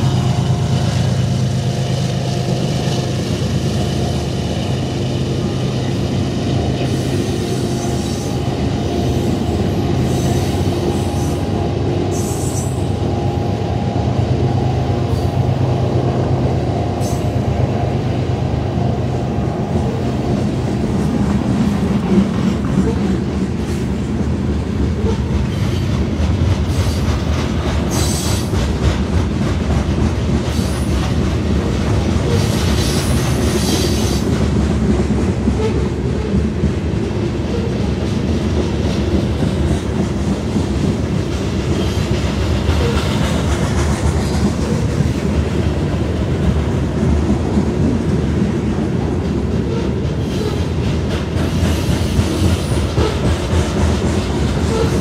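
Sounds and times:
diesel locomotive drone: 0.0s - 55.0s
train wheels clacking on rails: 0.0s - 55.0s.

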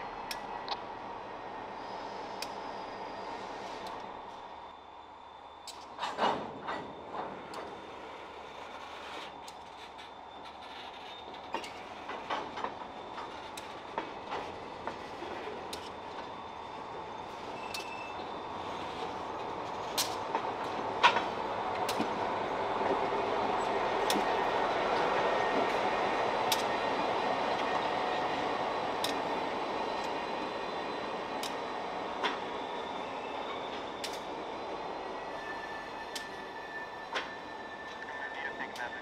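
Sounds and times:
diesel locomotive engine: 0.0s - 39.0s
train wheels clicking over rail joints: 5.6s - 16.4s, 17.2s - 22.2s, 23.6s - 27.0s, 27.6s - 30.3s, 31.3s - 32.6s, 33.5s - 34.4s, 36.0s - 36.4s
wheel squeal: 7.7s - 12.2s, 17.4s - 19.1s, 35.2s - 38.3s.

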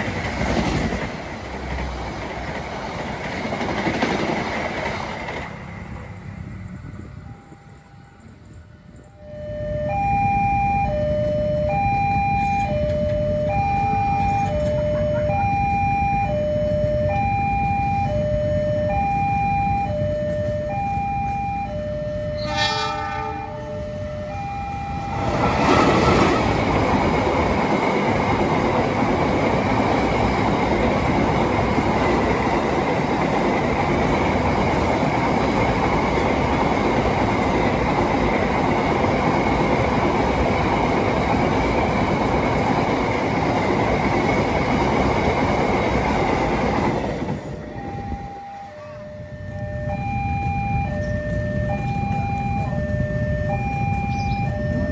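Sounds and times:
train wheels rumbling on rails: 0.0s - 9.3s, 11.6s - 54.9s
level crossing warning bell: 6.8s - 41.2s, 46.2s - 54.9s
train horn blast: 22.2s - 23.9s, 25.2s - 26.7s, 48.6s - 49.6s.

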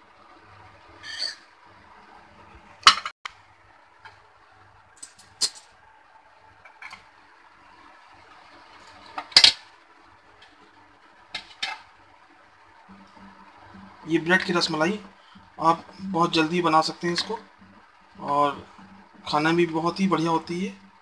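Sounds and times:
dishes clicking and knocking: 2.9s - 3.1s.

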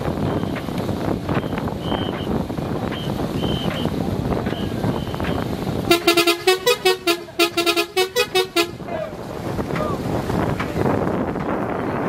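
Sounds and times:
wind on microphone: 0.0s - 6.4s, 8.2s - 12.0s
paddles splashing: 0.0s - 11.0s
horn short blasts: 5.9s - 8.8s.

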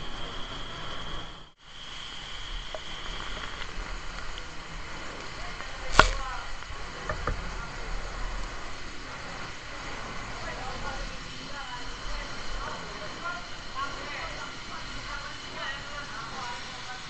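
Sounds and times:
fire hose spraying water: 0.0s - 17.0s
sharp crack: 5.6s - 7.2s.

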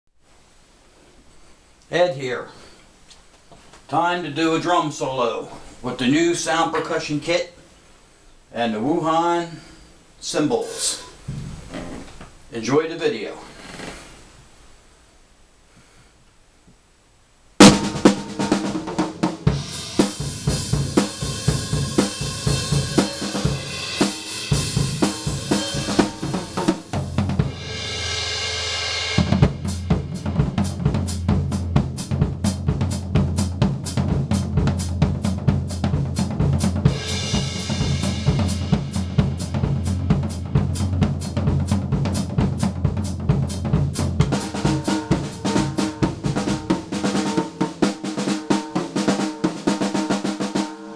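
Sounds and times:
drum kit solo: 10.4s - 12.0s, 17.6s - 50.9s
cymbal crashes: 17.6s - 33.4s, 36.7s - 50.9s.

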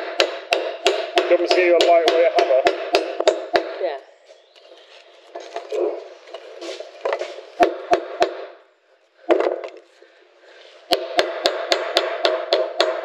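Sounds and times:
hammer striking nails into wood: 0.0s - 3.8s, 7.1s - 8.6s, 9.3s - 9.8s, 10.9s - 13.0s.

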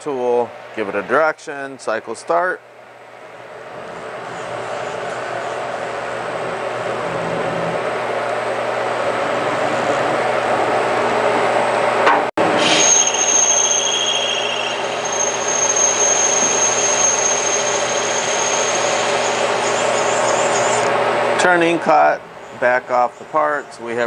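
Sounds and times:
high steady cutting whine: 3.6s - 23.0s
lathe running: 12.4s - 21.1s.

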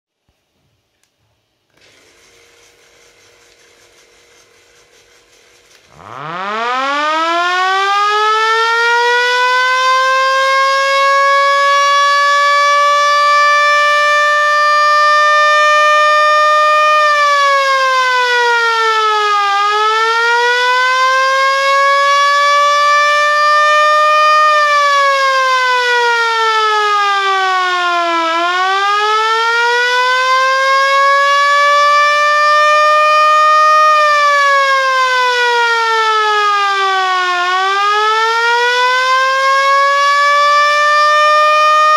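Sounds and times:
vehicle alarm siren wailing: 5.9s - 41.9s.

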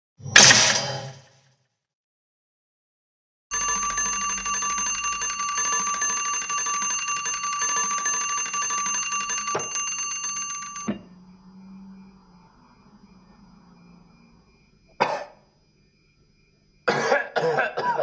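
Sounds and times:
bell ringing fast: 3.5s - 11.0s.

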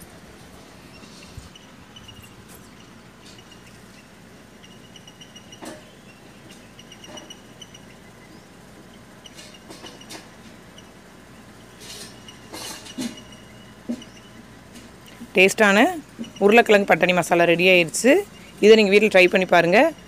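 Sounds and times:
faint high chirping: 0.8s - 12.5s, 13.1s - 16.8s, 18.2s - 20.0s.

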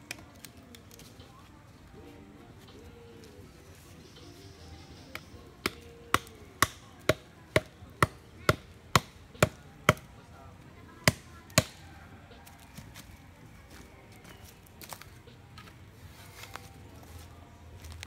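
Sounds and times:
hammer knocking wooden stake: 5.1s - 10.1s.

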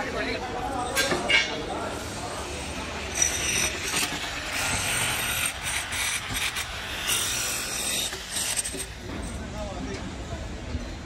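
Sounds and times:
clicks and scrapes: 3.0s - 9.3s.

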